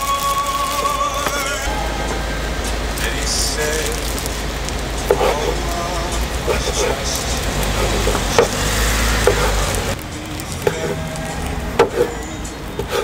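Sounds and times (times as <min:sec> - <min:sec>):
steady hiss: 0:00.0 - 0:13.0
knife chopping on wooden board: 0:05.1 - 0:05.4, 0:07.8 - 0:08.6, 0:09.2 - 0:09.6, 0:11.8 - 0:12.1.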